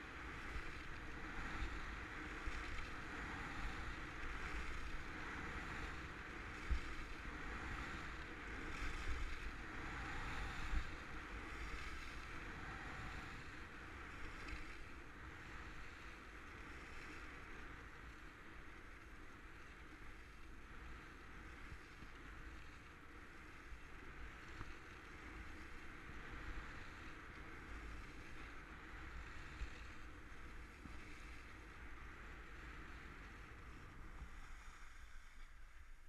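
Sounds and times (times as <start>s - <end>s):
wind buffeting microphone: 0.0s - 17.3s
skis sliding over packed snow: 0.0s - 36.0s.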